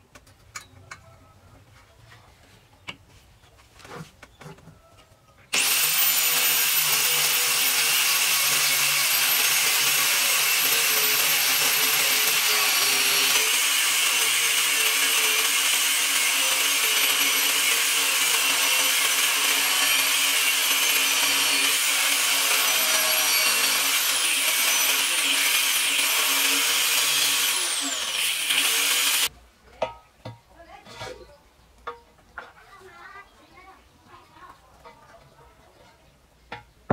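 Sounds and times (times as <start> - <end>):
angle grinder cutting steel: 5.5 - 29.3.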